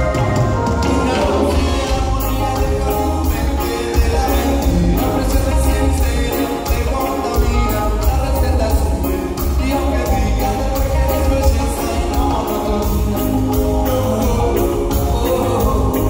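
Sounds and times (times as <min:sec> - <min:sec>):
person singing: 0:00.0 - 0:16.0
reggae band playing live: 0:00.0 - 0:16.0.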